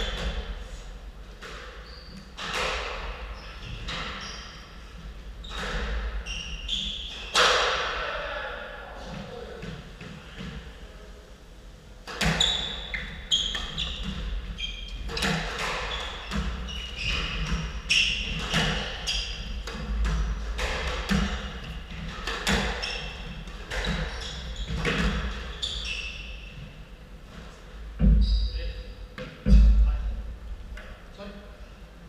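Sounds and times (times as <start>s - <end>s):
shoes squeaking on wooden floor: 1.7s - 7.4s, 12.2s - 28.9s.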